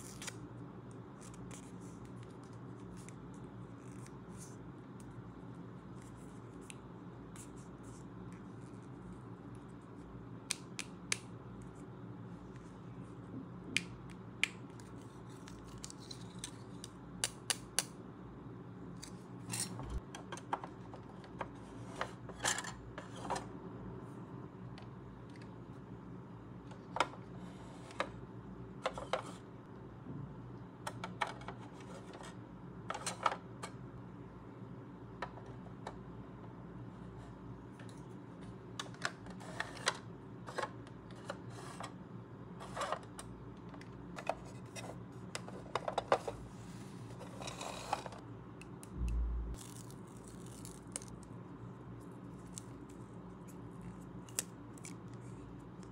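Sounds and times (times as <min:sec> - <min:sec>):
faint low hum: 0:17.9 - 0:55.9.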